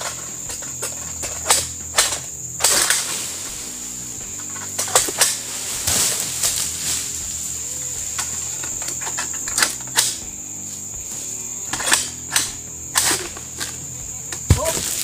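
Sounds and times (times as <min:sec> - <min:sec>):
high-pitched hiss: 0:00.0 - 0:15.0
harvesting sickle knocking on fronds: 0:04.4 - 0:07.4, 0:11.7 - 0:15.0.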